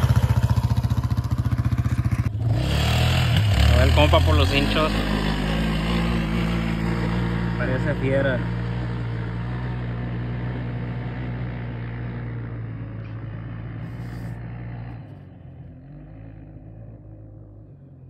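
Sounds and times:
engine idling: 0:00.0 - 0:02.5.

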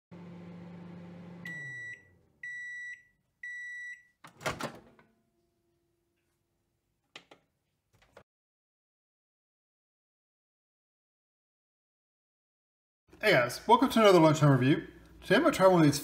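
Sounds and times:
microwave oven humming: 0:00.1 - 0:02.8
microwave high beeps: 0:01.4 - 0:04.2.

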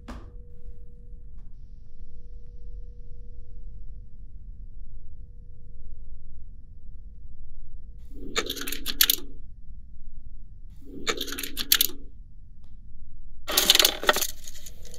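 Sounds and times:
faint steady hum: 0:00.0 - 0:14.9
rattling clattering clicks: 0:13.5 - 0:14.9.

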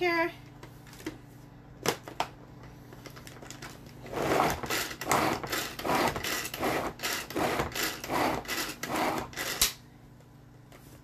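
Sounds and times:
pull-cord chopper whirring: 0:04.0 - 0:09.8.

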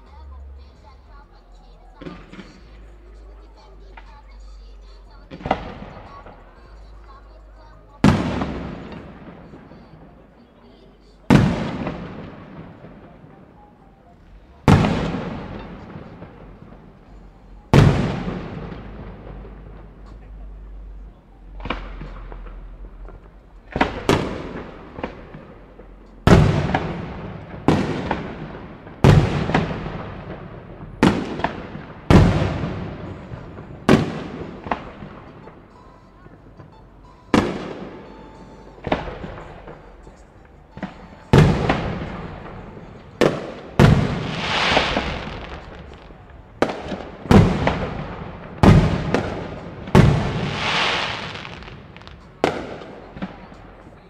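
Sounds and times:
fireworks bursting with echo: 0:00.0 - 0:54.0.

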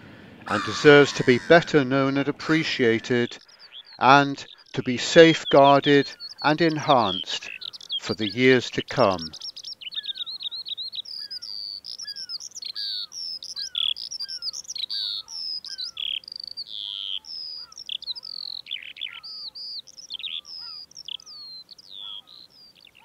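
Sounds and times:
low bird call: 0:00.0 - 0:04.7, 0:20.2 - 0:23.0
songbirds chirping and trilling: 0:00.0 - 0:23.0.

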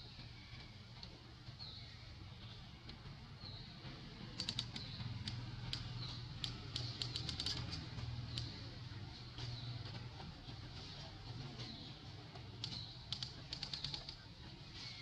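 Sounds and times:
light sharp clicks: 0:04.4 - 0:08.6, 0:12.6 - 0:14.2.

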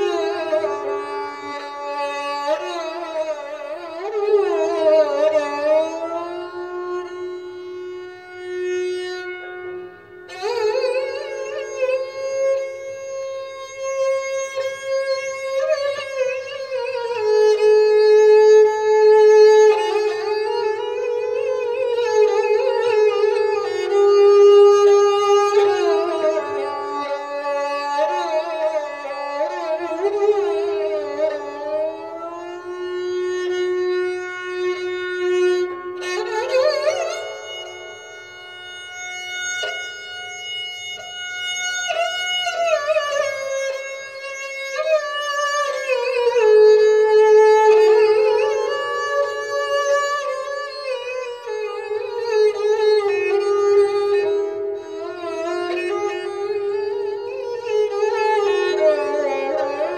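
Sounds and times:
bowed string solo melody: 0:00.0 - 0:59.9.

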